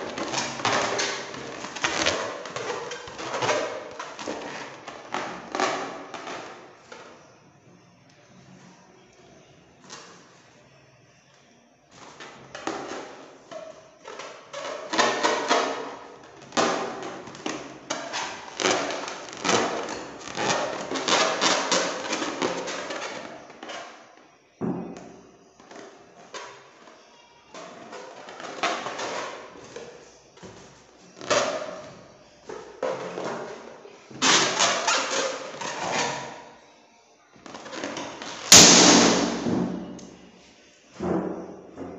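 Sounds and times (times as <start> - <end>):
balloons rubbing and creaking: 0.0 - 7.2, 12.0 - 36.6, 37.4 - 40.1.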